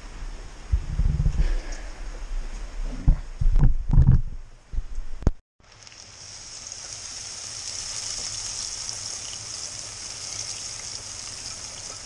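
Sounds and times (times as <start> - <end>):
seeds sizzling in hot oil: 5.6 - 12.0.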